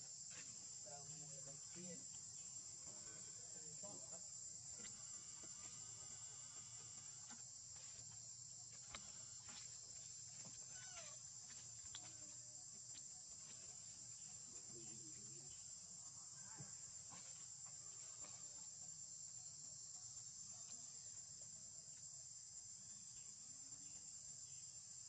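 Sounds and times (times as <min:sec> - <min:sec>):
high-pitched insect chorus: 0:00.0 - 0:25.0.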